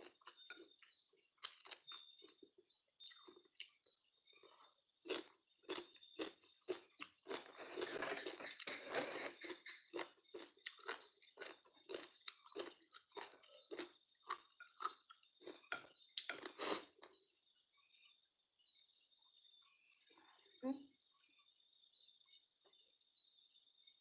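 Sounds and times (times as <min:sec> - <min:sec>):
chewing crunchy food: 0:00.0 - 0:17.3.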